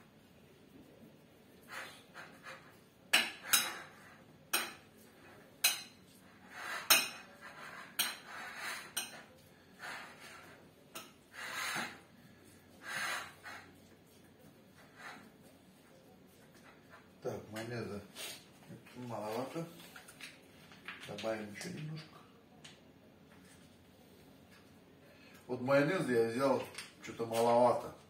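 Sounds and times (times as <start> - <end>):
spoon clinking and scraping plate: 1.8 - 9.4.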